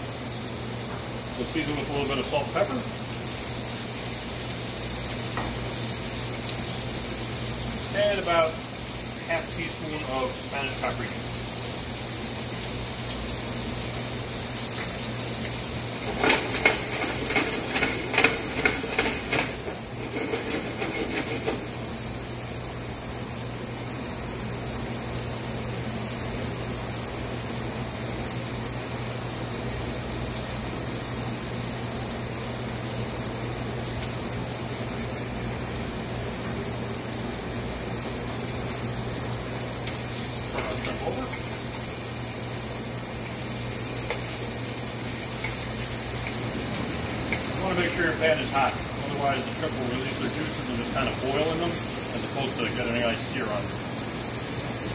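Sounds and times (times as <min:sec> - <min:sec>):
shrimp sizzling in a frying pan: 0:00.0 - 0:54.9
rapid crackling: 0:15.8 - 0:21.9.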